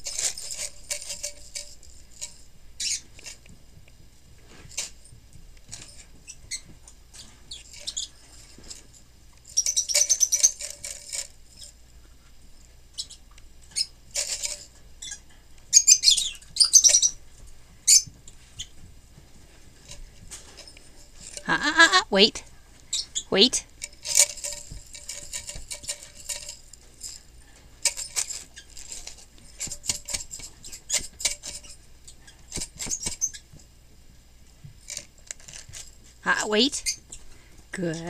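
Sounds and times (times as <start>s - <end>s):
seeds rattling in jar: 0.0s - 3.4s, 5.7s - 11.8s, 22.9s - 31.8s.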